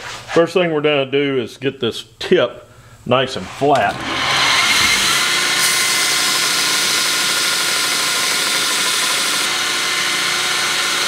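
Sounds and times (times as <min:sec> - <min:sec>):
belt grinder grinding steel: 0:03.5 - 0:11.0.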